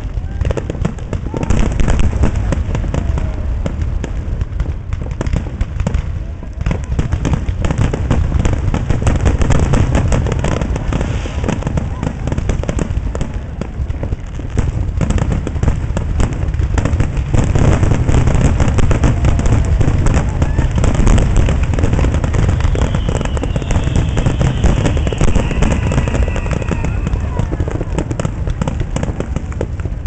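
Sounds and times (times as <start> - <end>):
falling firework whistle: 0.0 - 4.2, 9.3 - 14.1, 17.4 - 29.6
deep fireworks booming: 0.0 - 30.0
fireworks bangs and crackling: 0.0 - 30.0.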